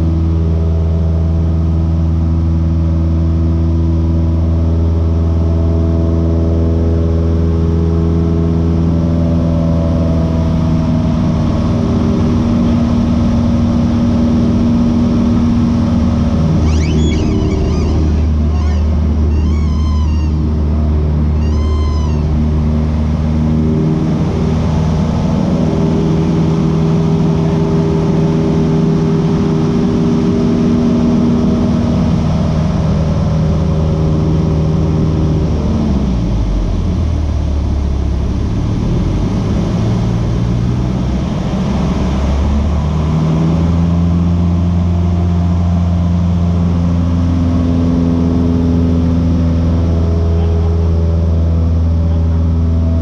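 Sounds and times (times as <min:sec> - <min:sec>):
aircraft engine and propeller droning: 0:00.0 - 0:53.0.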